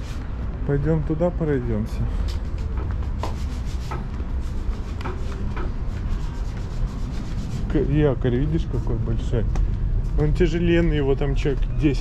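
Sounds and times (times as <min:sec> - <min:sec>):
footsteps on wooden deck: 0:02.1 - 0:06.7.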